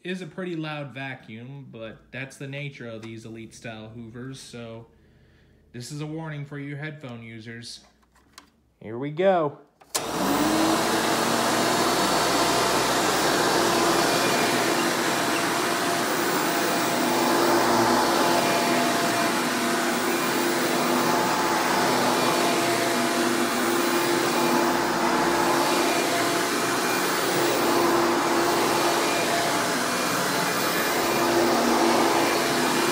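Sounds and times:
upright vacuum cleaner running: 9.9 - 32.9.

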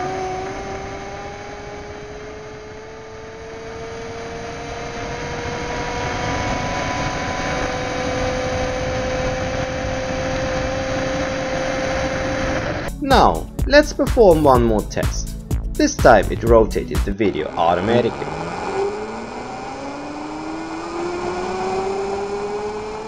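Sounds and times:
electric scooter motor whining: 0.0 - 12.9, 17.5 - 23.0.

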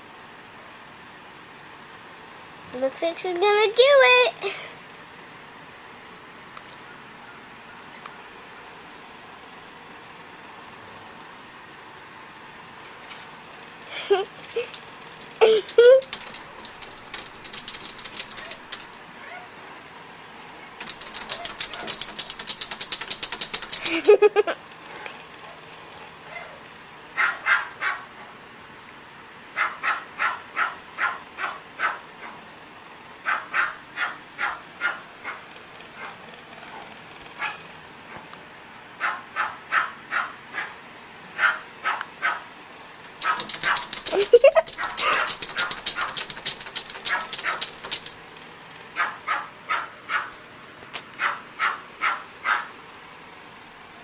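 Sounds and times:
small dog yapping: 15.4 - 19.5, 20.9 - 22.4, 27.2 - 28.1, 29.6 - 32.4, 33.3 - 35.4, 39.0 - 40.7, 41.4 - 42.4, 43.2 - 48.1, 49.0 - 50.4, 51.2 - 52.7.

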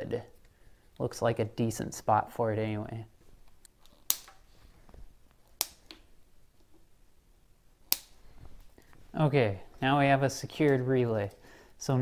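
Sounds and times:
faint handling noise: 8.1 - 11.4.

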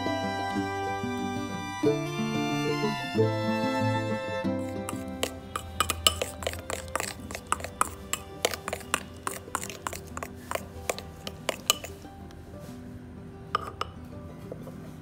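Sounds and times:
background music: 0.0 - 15.0
utensil beating egg in bowl: 4.6 - 12.1, 13.6 - 14.0.

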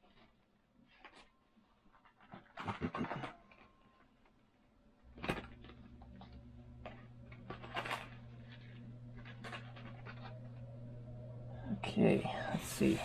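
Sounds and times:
steady low hum: 4.7 - 13.0.

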